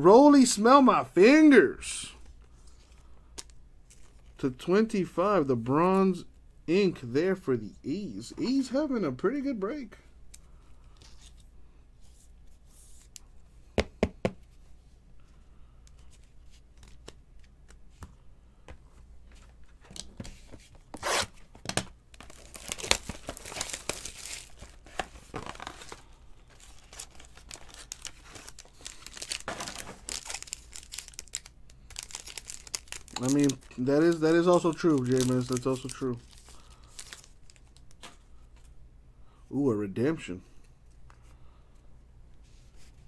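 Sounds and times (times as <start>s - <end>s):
foil wrapper crinkling: 22.1s - 38.1s.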